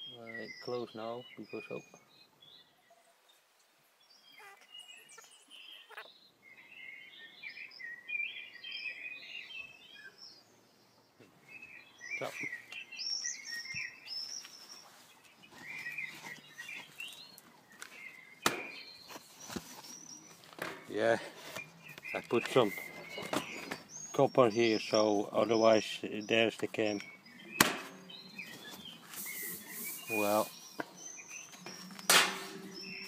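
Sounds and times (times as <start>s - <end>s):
small birds chirping: 0.0s - 33.0s.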